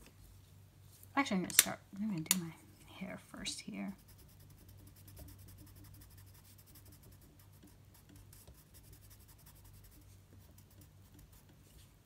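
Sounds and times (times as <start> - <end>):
steady low hum: 0.0 - 12.0
pencil scratching on paper: 4.0 - 11.8.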